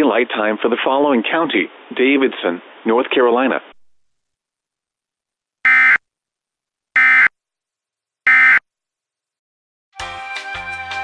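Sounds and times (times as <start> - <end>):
digital data tone bursts: 5.7 - 6.0, 7.0 - 7.3, 8.3 - 8.6.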